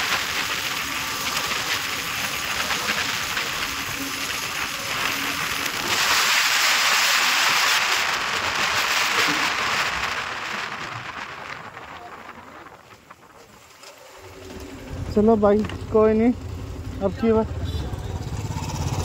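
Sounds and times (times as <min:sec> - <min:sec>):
wind rushing over microphone: 0:00.0 - 0:13.6
motorcycle road noise: 0:00.0 - 0:19.0.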